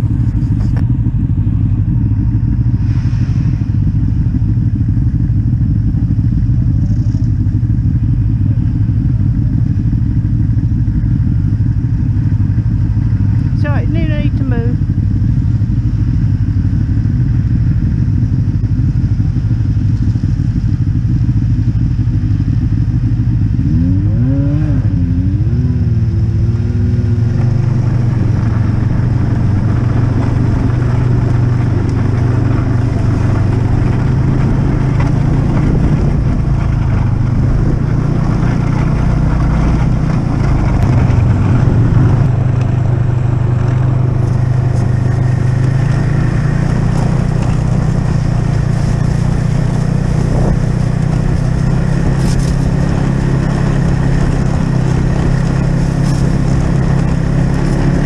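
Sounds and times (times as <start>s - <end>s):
snowmobile engine running: 0.0s - 58.0s
engine revving: 23.4s - 58.0s.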